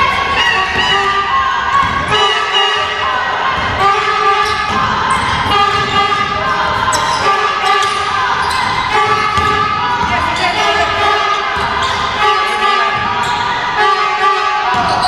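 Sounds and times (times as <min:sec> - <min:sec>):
voices calling out in echoing hall: 0:00.0 - 0:15.0
basketball bouncing on wooden floor: 0:07.8 - 0:11.0.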